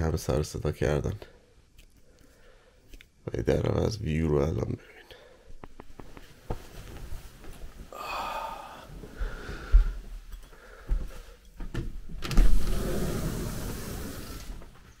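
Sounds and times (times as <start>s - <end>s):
sliding glass door rolling: 12.2s - 15.0s.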